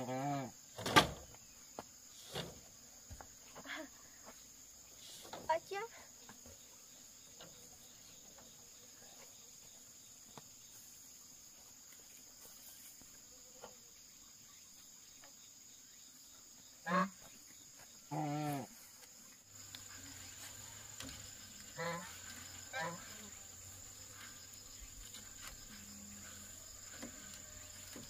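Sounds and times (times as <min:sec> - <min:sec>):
high-pitched insect drone: 0:19.6 - 0:28.0.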